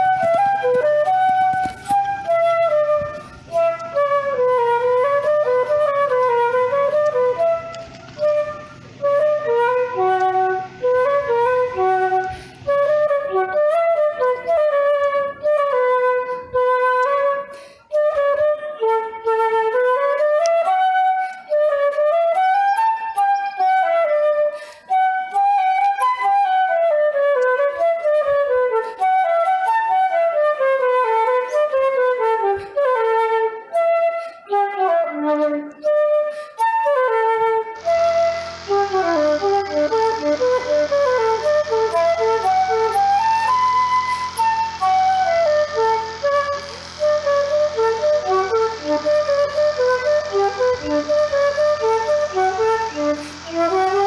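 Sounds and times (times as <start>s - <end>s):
low sustained drone: 0.0s - 16.6s, 37.6s - 54.0s
running flute melody: 0.0s - 54.0s.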